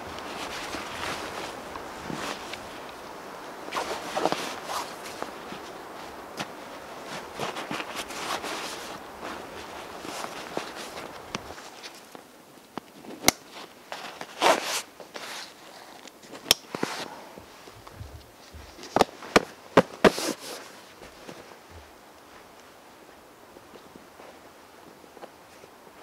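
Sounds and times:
nylon straps swishing: 0:00.0 - 0:03.0, 0:03.6 - 0:12.0.

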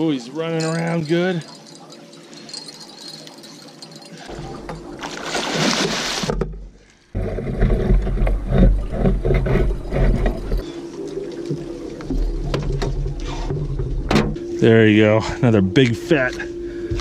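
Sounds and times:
fish thrashing and splashing: 0:00.8 - 0:06.4
water sloshing with knocks: 0:04.3 - 0:14.4.

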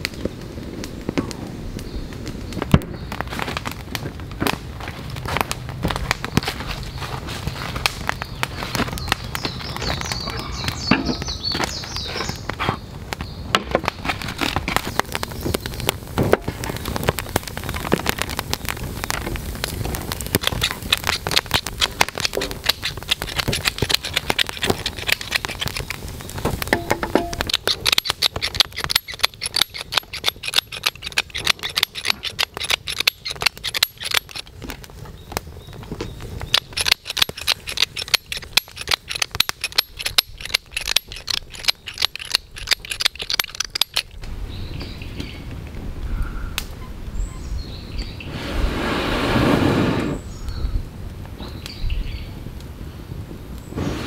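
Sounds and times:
crackles and handling noises: 0:00.0 - 0:45.9
pepper mill grinding clicks: 0:36.5 - 0:44.2.

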